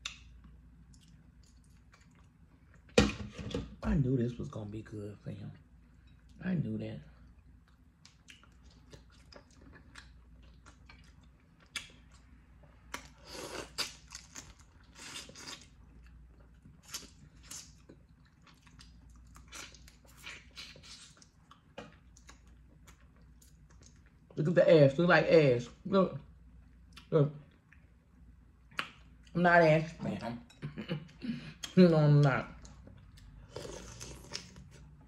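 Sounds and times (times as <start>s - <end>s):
chewing: 0.9s - 2.9s, 7.2s - 24.3s.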